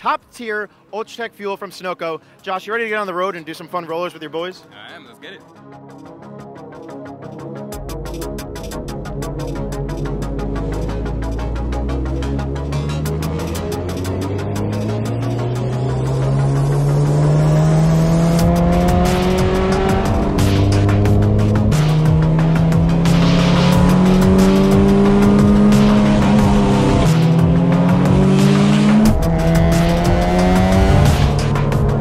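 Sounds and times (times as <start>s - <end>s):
music: 0.0s - 32.0s
car engine accelerating: 8.8s - 32.0s.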